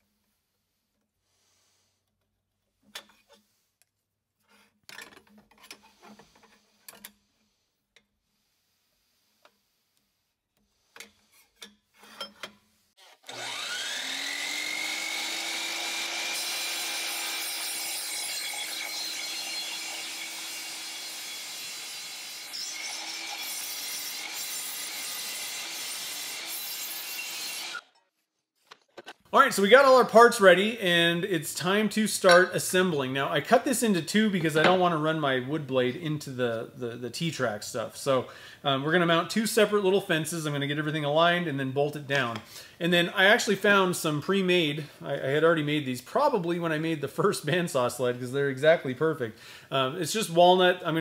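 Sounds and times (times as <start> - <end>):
miter saw whining: 13.0 - 27.9
saw blade cutting metal: 13.0 - 28.0.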